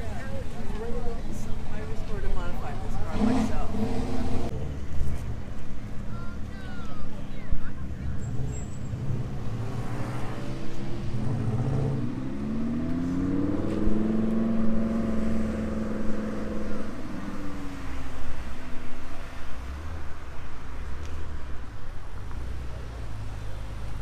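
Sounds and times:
car engine revving: 2.7 - 4.9, 8.2 - 18.6.

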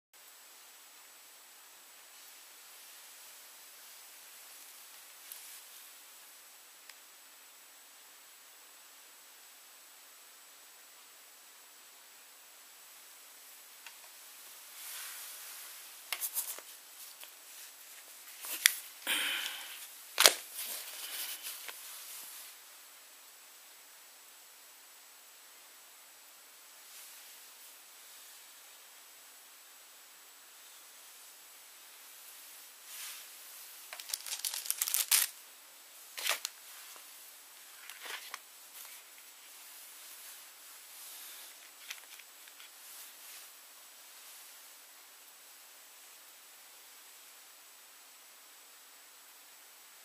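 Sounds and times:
rubber cap rubbing and rustling: 13.8 - 19.0, 19.8 - 22.5, 32.9 - 35.4, 36.1 - 43.4.

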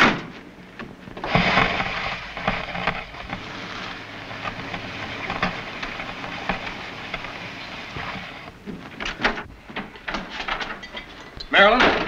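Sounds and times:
car tyres crunching over snow: 0.4 - 9.0.

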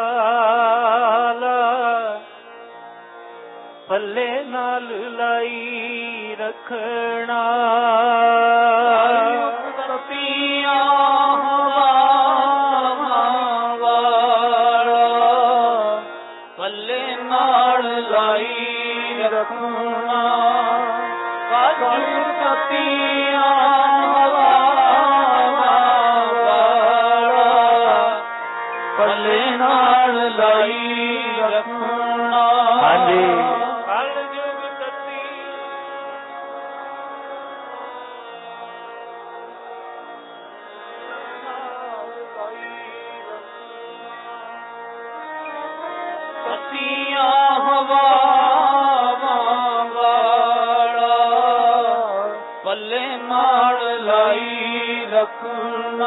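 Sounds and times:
man singing devotional song: 0.0 - 2.9, 3.9 - 37.8, 41.0 - 56.0
held accompaniment tones: 32.8 - 35.2.

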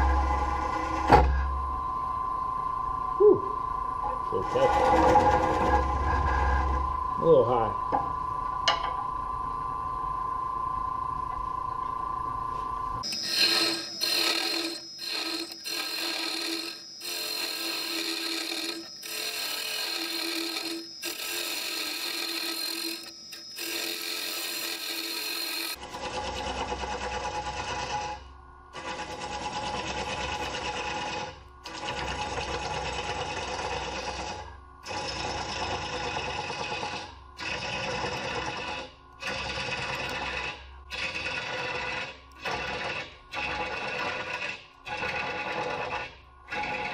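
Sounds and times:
lathe tool cutting wood: 4.3 - 6.9, 13.0 - 28.2, 28.8 - 46.9.

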